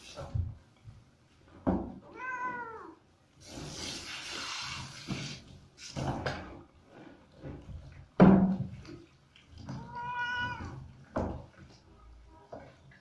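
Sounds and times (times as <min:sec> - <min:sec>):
cat meowing: 0:02.1 - 0:03.0, 0:09.7 - 0:10.9
rubbing of wet fur: 0:03.4 - 0:06.0.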